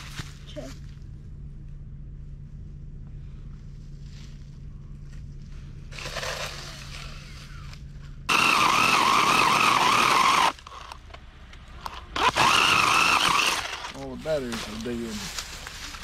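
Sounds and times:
cordless chainsaw whining: 0:08.3 - 0:11.0, 0:12.2 - 0:14.1.

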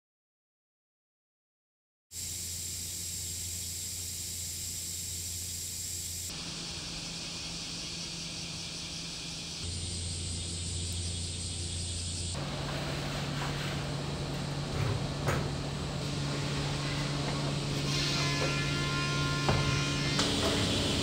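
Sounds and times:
low hum: 0:02.2 - 0:17.8.

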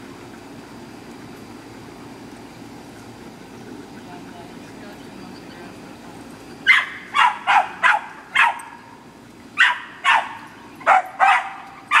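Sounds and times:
dog barking: 0:06.6 - 0:08.9, 0:09.6 - 0:12.0.

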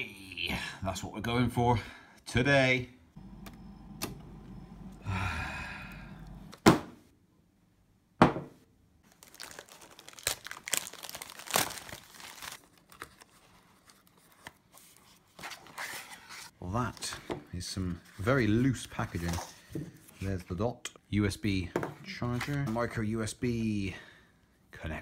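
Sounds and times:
low hum: 0:03.2 - 0:06.6
plastic wrap tearing and crinkling: 0:09.0 - 0:14.7.

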